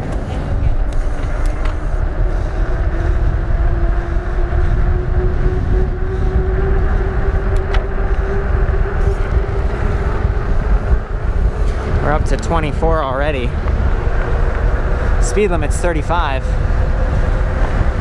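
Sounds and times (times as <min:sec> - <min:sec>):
bike tyres rolling on asphalt: 0:00.0 - 0:18.0
wind rushing over microphone: 0:00.0 - 0:18.0
motor hum rising in pitch: 0:00.6 - 0:18.0.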